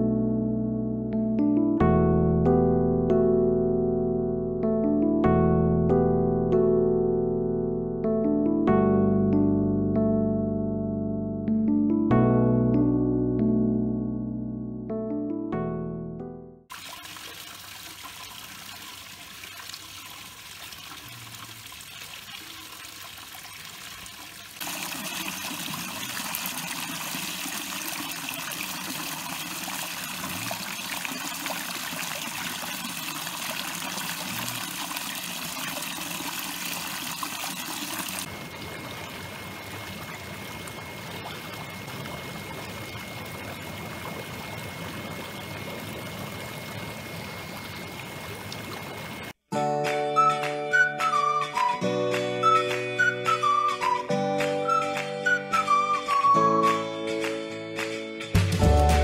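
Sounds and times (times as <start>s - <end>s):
running water flowing: 16.7s - 49.4s.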